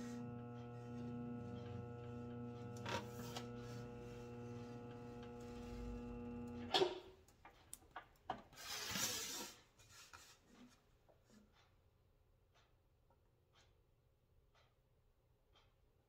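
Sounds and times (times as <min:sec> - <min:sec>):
bead roller motor humming: 0:00.0 - 0:06.7.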